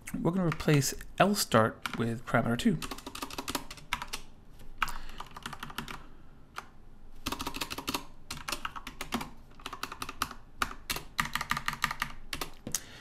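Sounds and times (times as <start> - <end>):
typing on a computer keyboard: 2.8 - 12.8.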